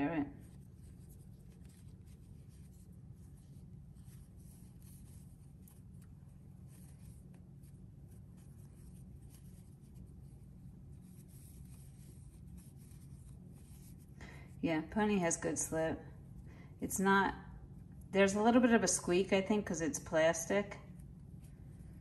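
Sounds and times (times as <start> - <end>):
crochet hook scratching yarn: 0.0 - 15.7
low room hum: 0.0 - 22.0.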